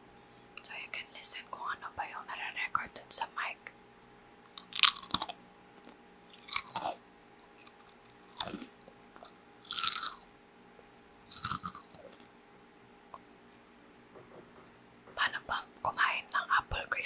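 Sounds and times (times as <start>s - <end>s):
potato chip crunching: 4.6s - 10.3s, 11.3s - 12.2s.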